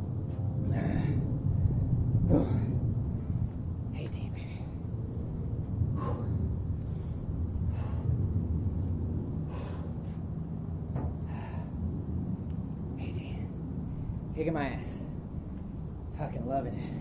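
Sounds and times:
steady low rumble: 0.0 - 17.0
man breathing hard: 5.9 - 8.6, 9.3 - 10.3, 11.1 - 12.1.

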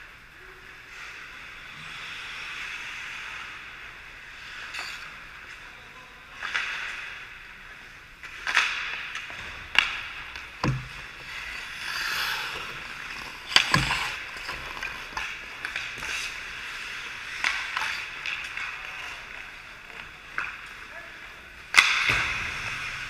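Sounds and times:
sticks and puck clacking: 6.3 - 7.4, 8.2 - 20.9, 21.6 - 22.3
skate blades scraping ice: 8.2 - 20.8.

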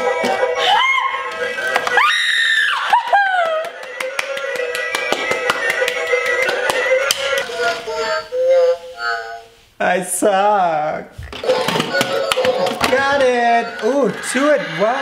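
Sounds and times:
falling cry: 0.6 - 1.2
person shrieking: 0.6 - 1.2
hand claps: 1.3 - 2.0, 2.8 - 7.5, 12.0 - 12.6.

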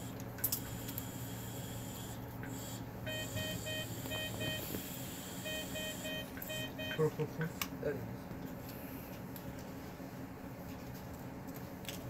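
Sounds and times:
low hum of equipment: 0.0 - 12.0
medical monitor alarm beeps: 1.0 - 7.2.

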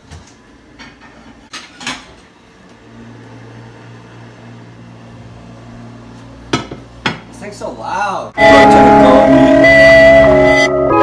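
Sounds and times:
kitchen appliance humming: 0.0 - 7.8.

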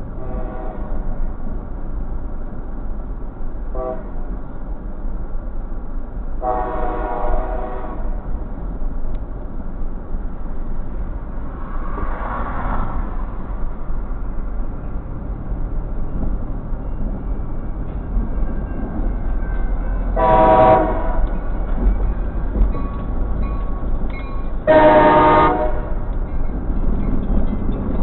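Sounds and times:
low rumble of road noise: 0.0 - 28.0
locomotive air horn blasts: 0.2 - 1.1, 3.7 - 4.2, 6.4 - 8.2, 20.1 - 21.4, 24.6 - 26.1.

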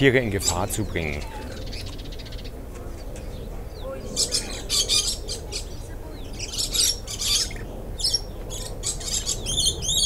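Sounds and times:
parrots screeching: 4.2 - 5.7, 6.4 - 10.0.

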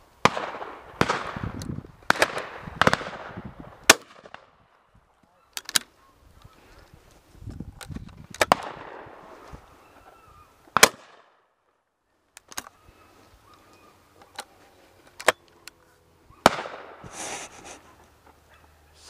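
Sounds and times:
distant shotgun shots: 0.2 - 4.6, 8.4 - 9.3, 10.7 - 11.5, 16.4 - 17.1
loud shotgun shots: 0.2 - 4.6, 8.4 - 9.2, 10.8 - 11.3, 16.4 - 17.1.

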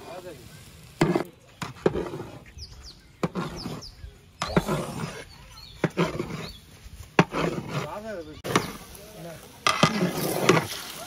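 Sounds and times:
paddle stirring and scraping pot: 0.9 - 11.0
bird chirps: 2.4 - 6.9.

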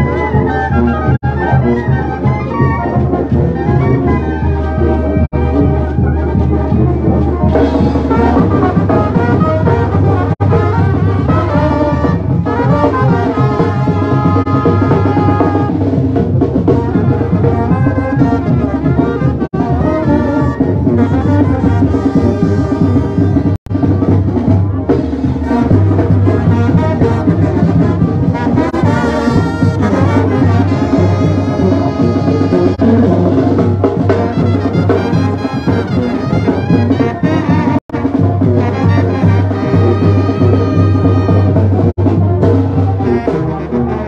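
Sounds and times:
brass band playing: 0.0 - 44.0.

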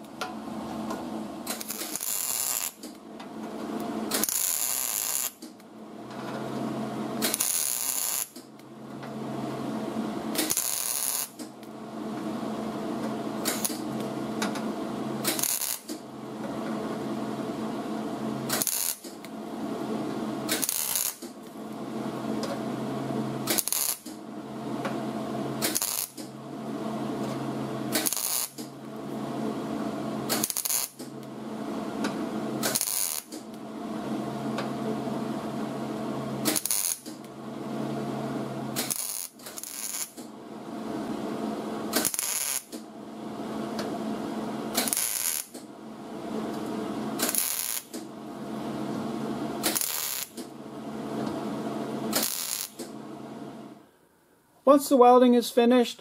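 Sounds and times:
steady hum: 0.0 - 55.8
welder crackling bursts: 1.4 - 3.0, 4.1 - 5.5, 7.2 - 8.4, 10.3 - 11.4, 13.4 - 13.9, 15.2 - 16.0, 18.4 - 19.4, 20.4 - 21.4, 23.4 - 24.2, 25.6 - 26.3, 27.9 - 28.7, 30.2 - 31.1, 32.6 - 33.6, 36.4 - 37.2, 38.8 - 40.2, 41.8 - 42.8, 44.7 - 45.6, 46.6 - 48.0, 49.6 - 50.5, 52.0 - 52.9.

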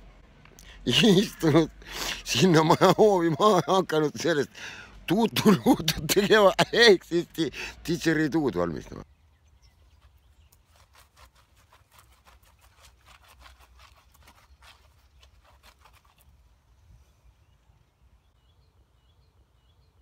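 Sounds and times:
bird chirping: 8.5 - 11.1, 12.2 - 20.0.

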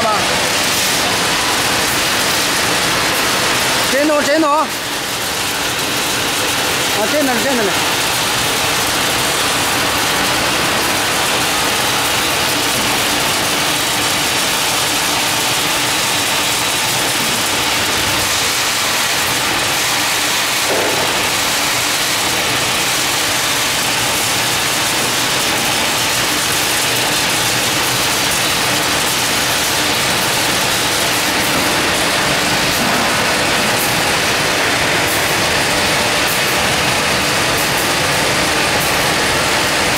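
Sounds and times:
steady machine noise: 0.0 - 39.9.

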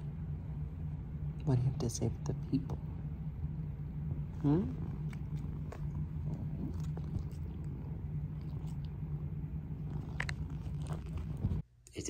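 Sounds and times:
cat purring: 4.0 - 11.6.

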